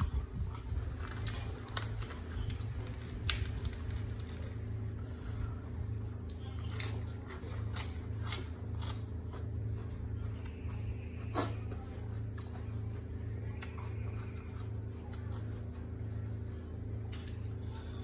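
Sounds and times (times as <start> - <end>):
lettuce leaves crackling: 0.0 - 5.0, 5.7 - 10.6
steady low hum: 0.0 - 18.0.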